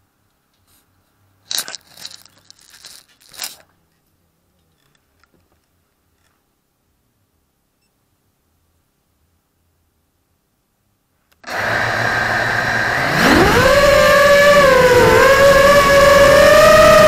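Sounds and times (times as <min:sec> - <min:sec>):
faint background noise: 0:00.0 - 0:11.5.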